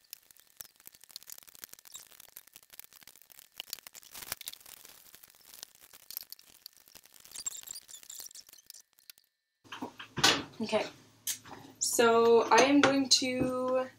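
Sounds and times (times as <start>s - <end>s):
bacon sizzling in a pan: 0.0s - 9.3s
crackles and pops: 0.0s - 11.6s.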